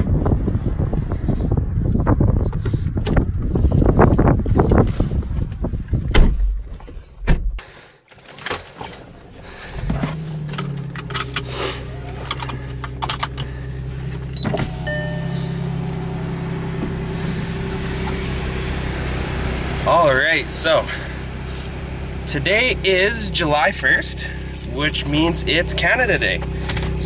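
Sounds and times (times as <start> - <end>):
car engine starting and idling: 0.0 - 27.0
short electronic chime: 14.7 - 15.7.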